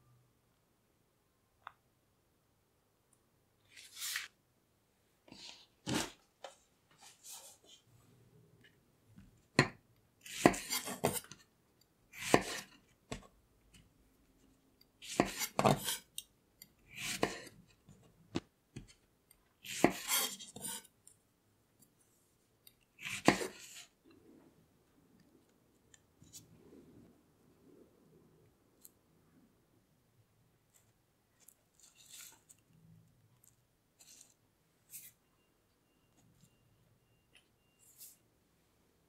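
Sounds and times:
faint handling sounds: 0:05.2 - 0:08.9, 0:30.6 - 0:38.7
knife slicing on cutting board: 0:10.3 - 0:11.3, 0:12.2 - 0:12.7, 0:23.0 - 0:23.9.

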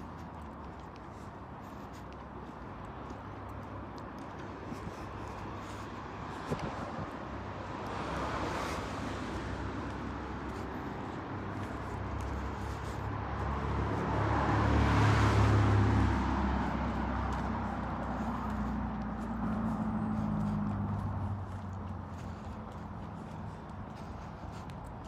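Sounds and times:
car driving past: 0:13.4 - 0:21.7.

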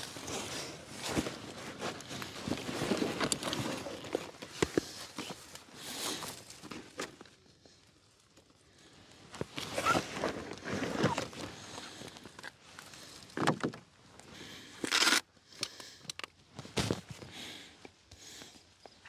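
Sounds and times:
fabric and cables rustling: 0:00.0 - 0:13.4.

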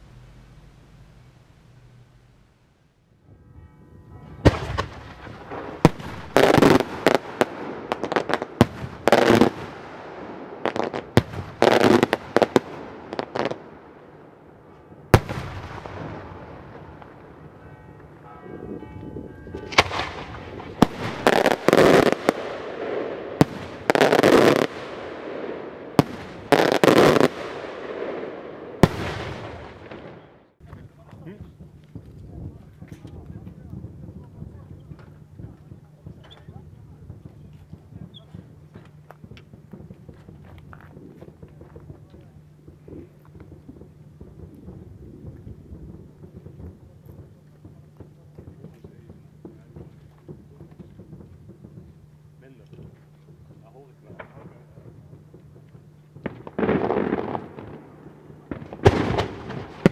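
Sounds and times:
rumbling echo: 0:00.0 - 0:23.9
fireworks bangs: 0:00.0 - 0:59.9
sharp firework crack: 0:04.4 - 0:14.5, 0:15.1 - 0:17.6, 0:19.5 - 0:59.9.

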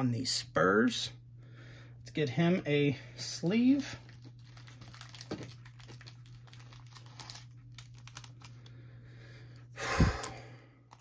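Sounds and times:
plastic sleeve crinkling: 0:03.8 - 0:08.8.

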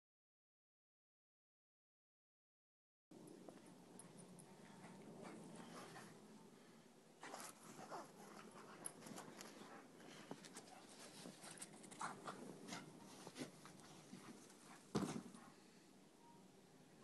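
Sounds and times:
faint squeaks: 0:03.3 - 0:16.5.

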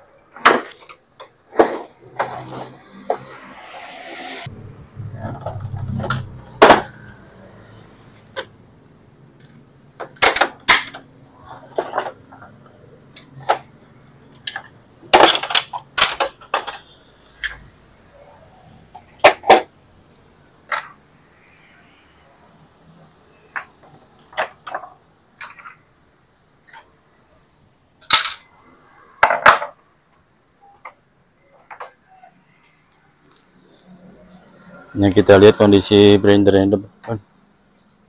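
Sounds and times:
plastic and metal parts clicking: 0:10.2 - 0:17.6.

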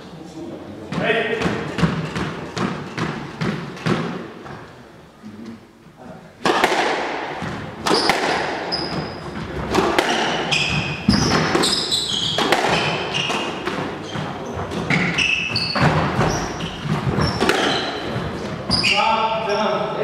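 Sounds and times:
squash ball hitting rackets and walls: 0:00.8 - 0:04.8, 0:06.4 - 0:19.4
shoe squeaks on wooden floor: 0:07.9 - 0:09.6, 0:10.3 - 0:19.3.

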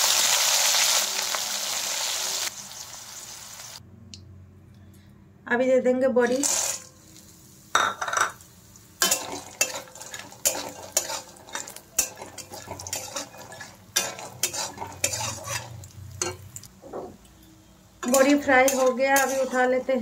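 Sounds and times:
food sizzling in oil: 0:00.0 - 0:03.8, 0:06.2 - 0:16.7, 0:17.8 - 0:20.0
metal spatula scraping pan: 0:09.0 - 0:16.4, 0:18.0 - 0:20.0.

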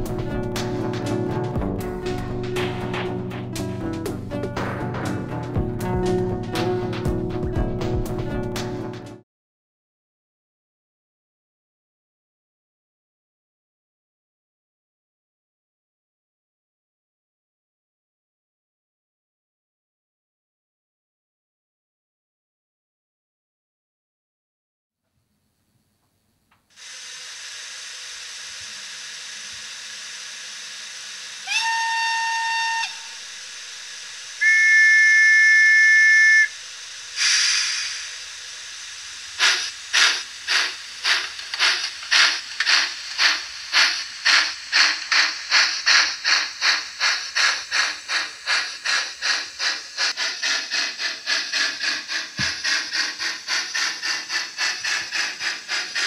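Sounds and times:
steam locomotive chuffing: 0:00.0 - 0:09.2, 0:26.8 - 0:56.0
burst of steam: 0:26.7 - 0:56.0
steam hiss: 0:26.7 - 0:56.0
steam locomotive whistle: 0:31.4 - 0:33.5, 0:34.4 - 0:36.6, 0:37.2 - 0:38.0.

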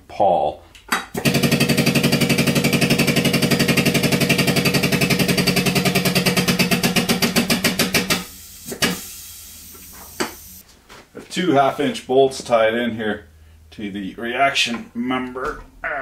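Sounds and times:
hydraulic pump pulsing: 0:01.2 - 0:09.0.

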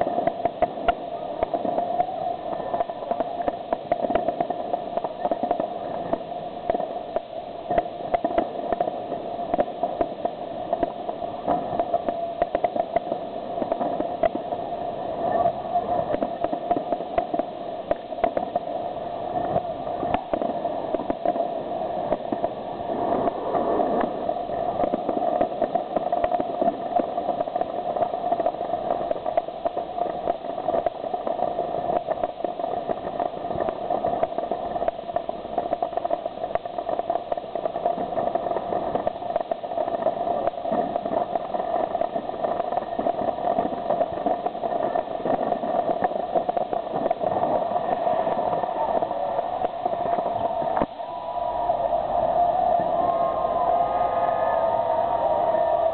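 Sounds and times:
fireworks bangs and crackles: 0:00.0 - 0:55.9.

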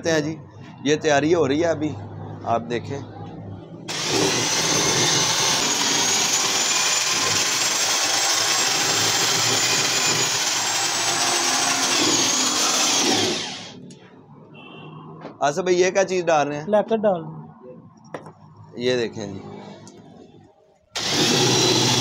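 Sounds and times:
electric drill mixing paint: 0:03.9 - 0:13.8, 0:21.0 - 0:22.0.

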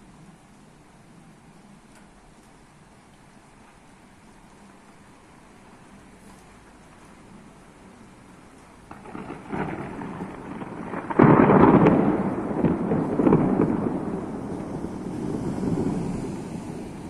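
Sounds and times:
loud thunder clap: 0:08.9 - 0:17.0
thunder rumbling: 0:08.9 - 0:17.0.

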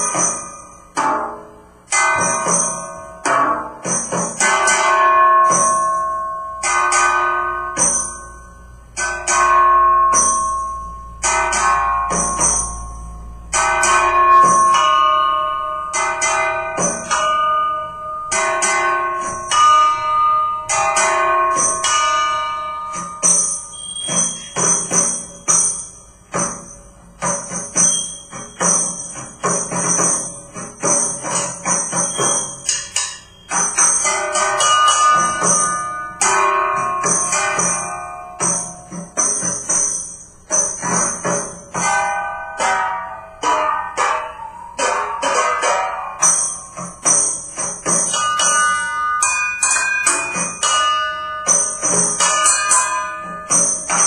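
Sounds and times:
percussion on household objects: 0:00.0 - 0:54.0
jingling strokes: 0:22.9 - 0:41.9.

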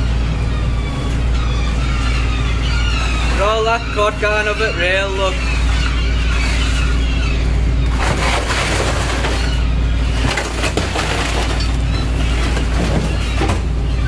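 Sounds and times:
boat machinery drone: 0:00.0 - 0:14.0
fish clattering and crunching: 0:07.9 - 0:13.9.

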